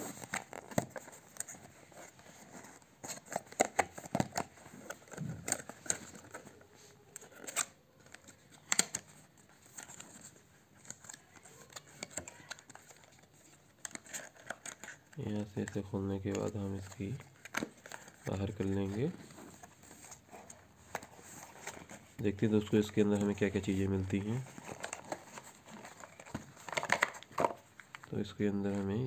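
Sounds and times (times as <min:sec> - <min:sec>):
cardboard box being opened: 0:24.0 - 0:28.0.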